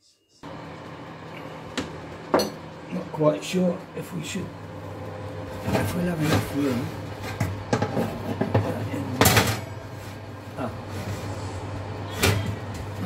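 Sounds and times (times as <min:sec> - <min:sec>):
low hum: 0:00.4 - 0:13.0
metal oven racks clattering: 0:05.5 - 0:11.2.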